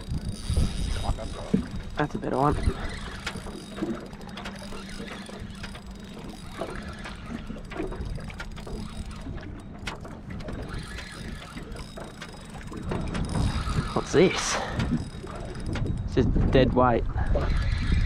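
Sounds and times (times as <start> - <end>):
wind on microphone: 0.0 - 3.6, 12.7 - 18.0
fishing reel clicking: 0.0 - 16.2.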